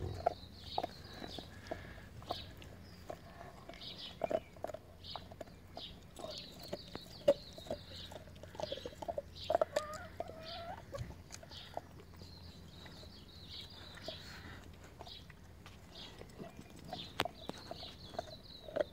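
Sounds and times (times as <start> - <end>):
hen clucking: 0.0 - 4.8, 7.2 - 12.8.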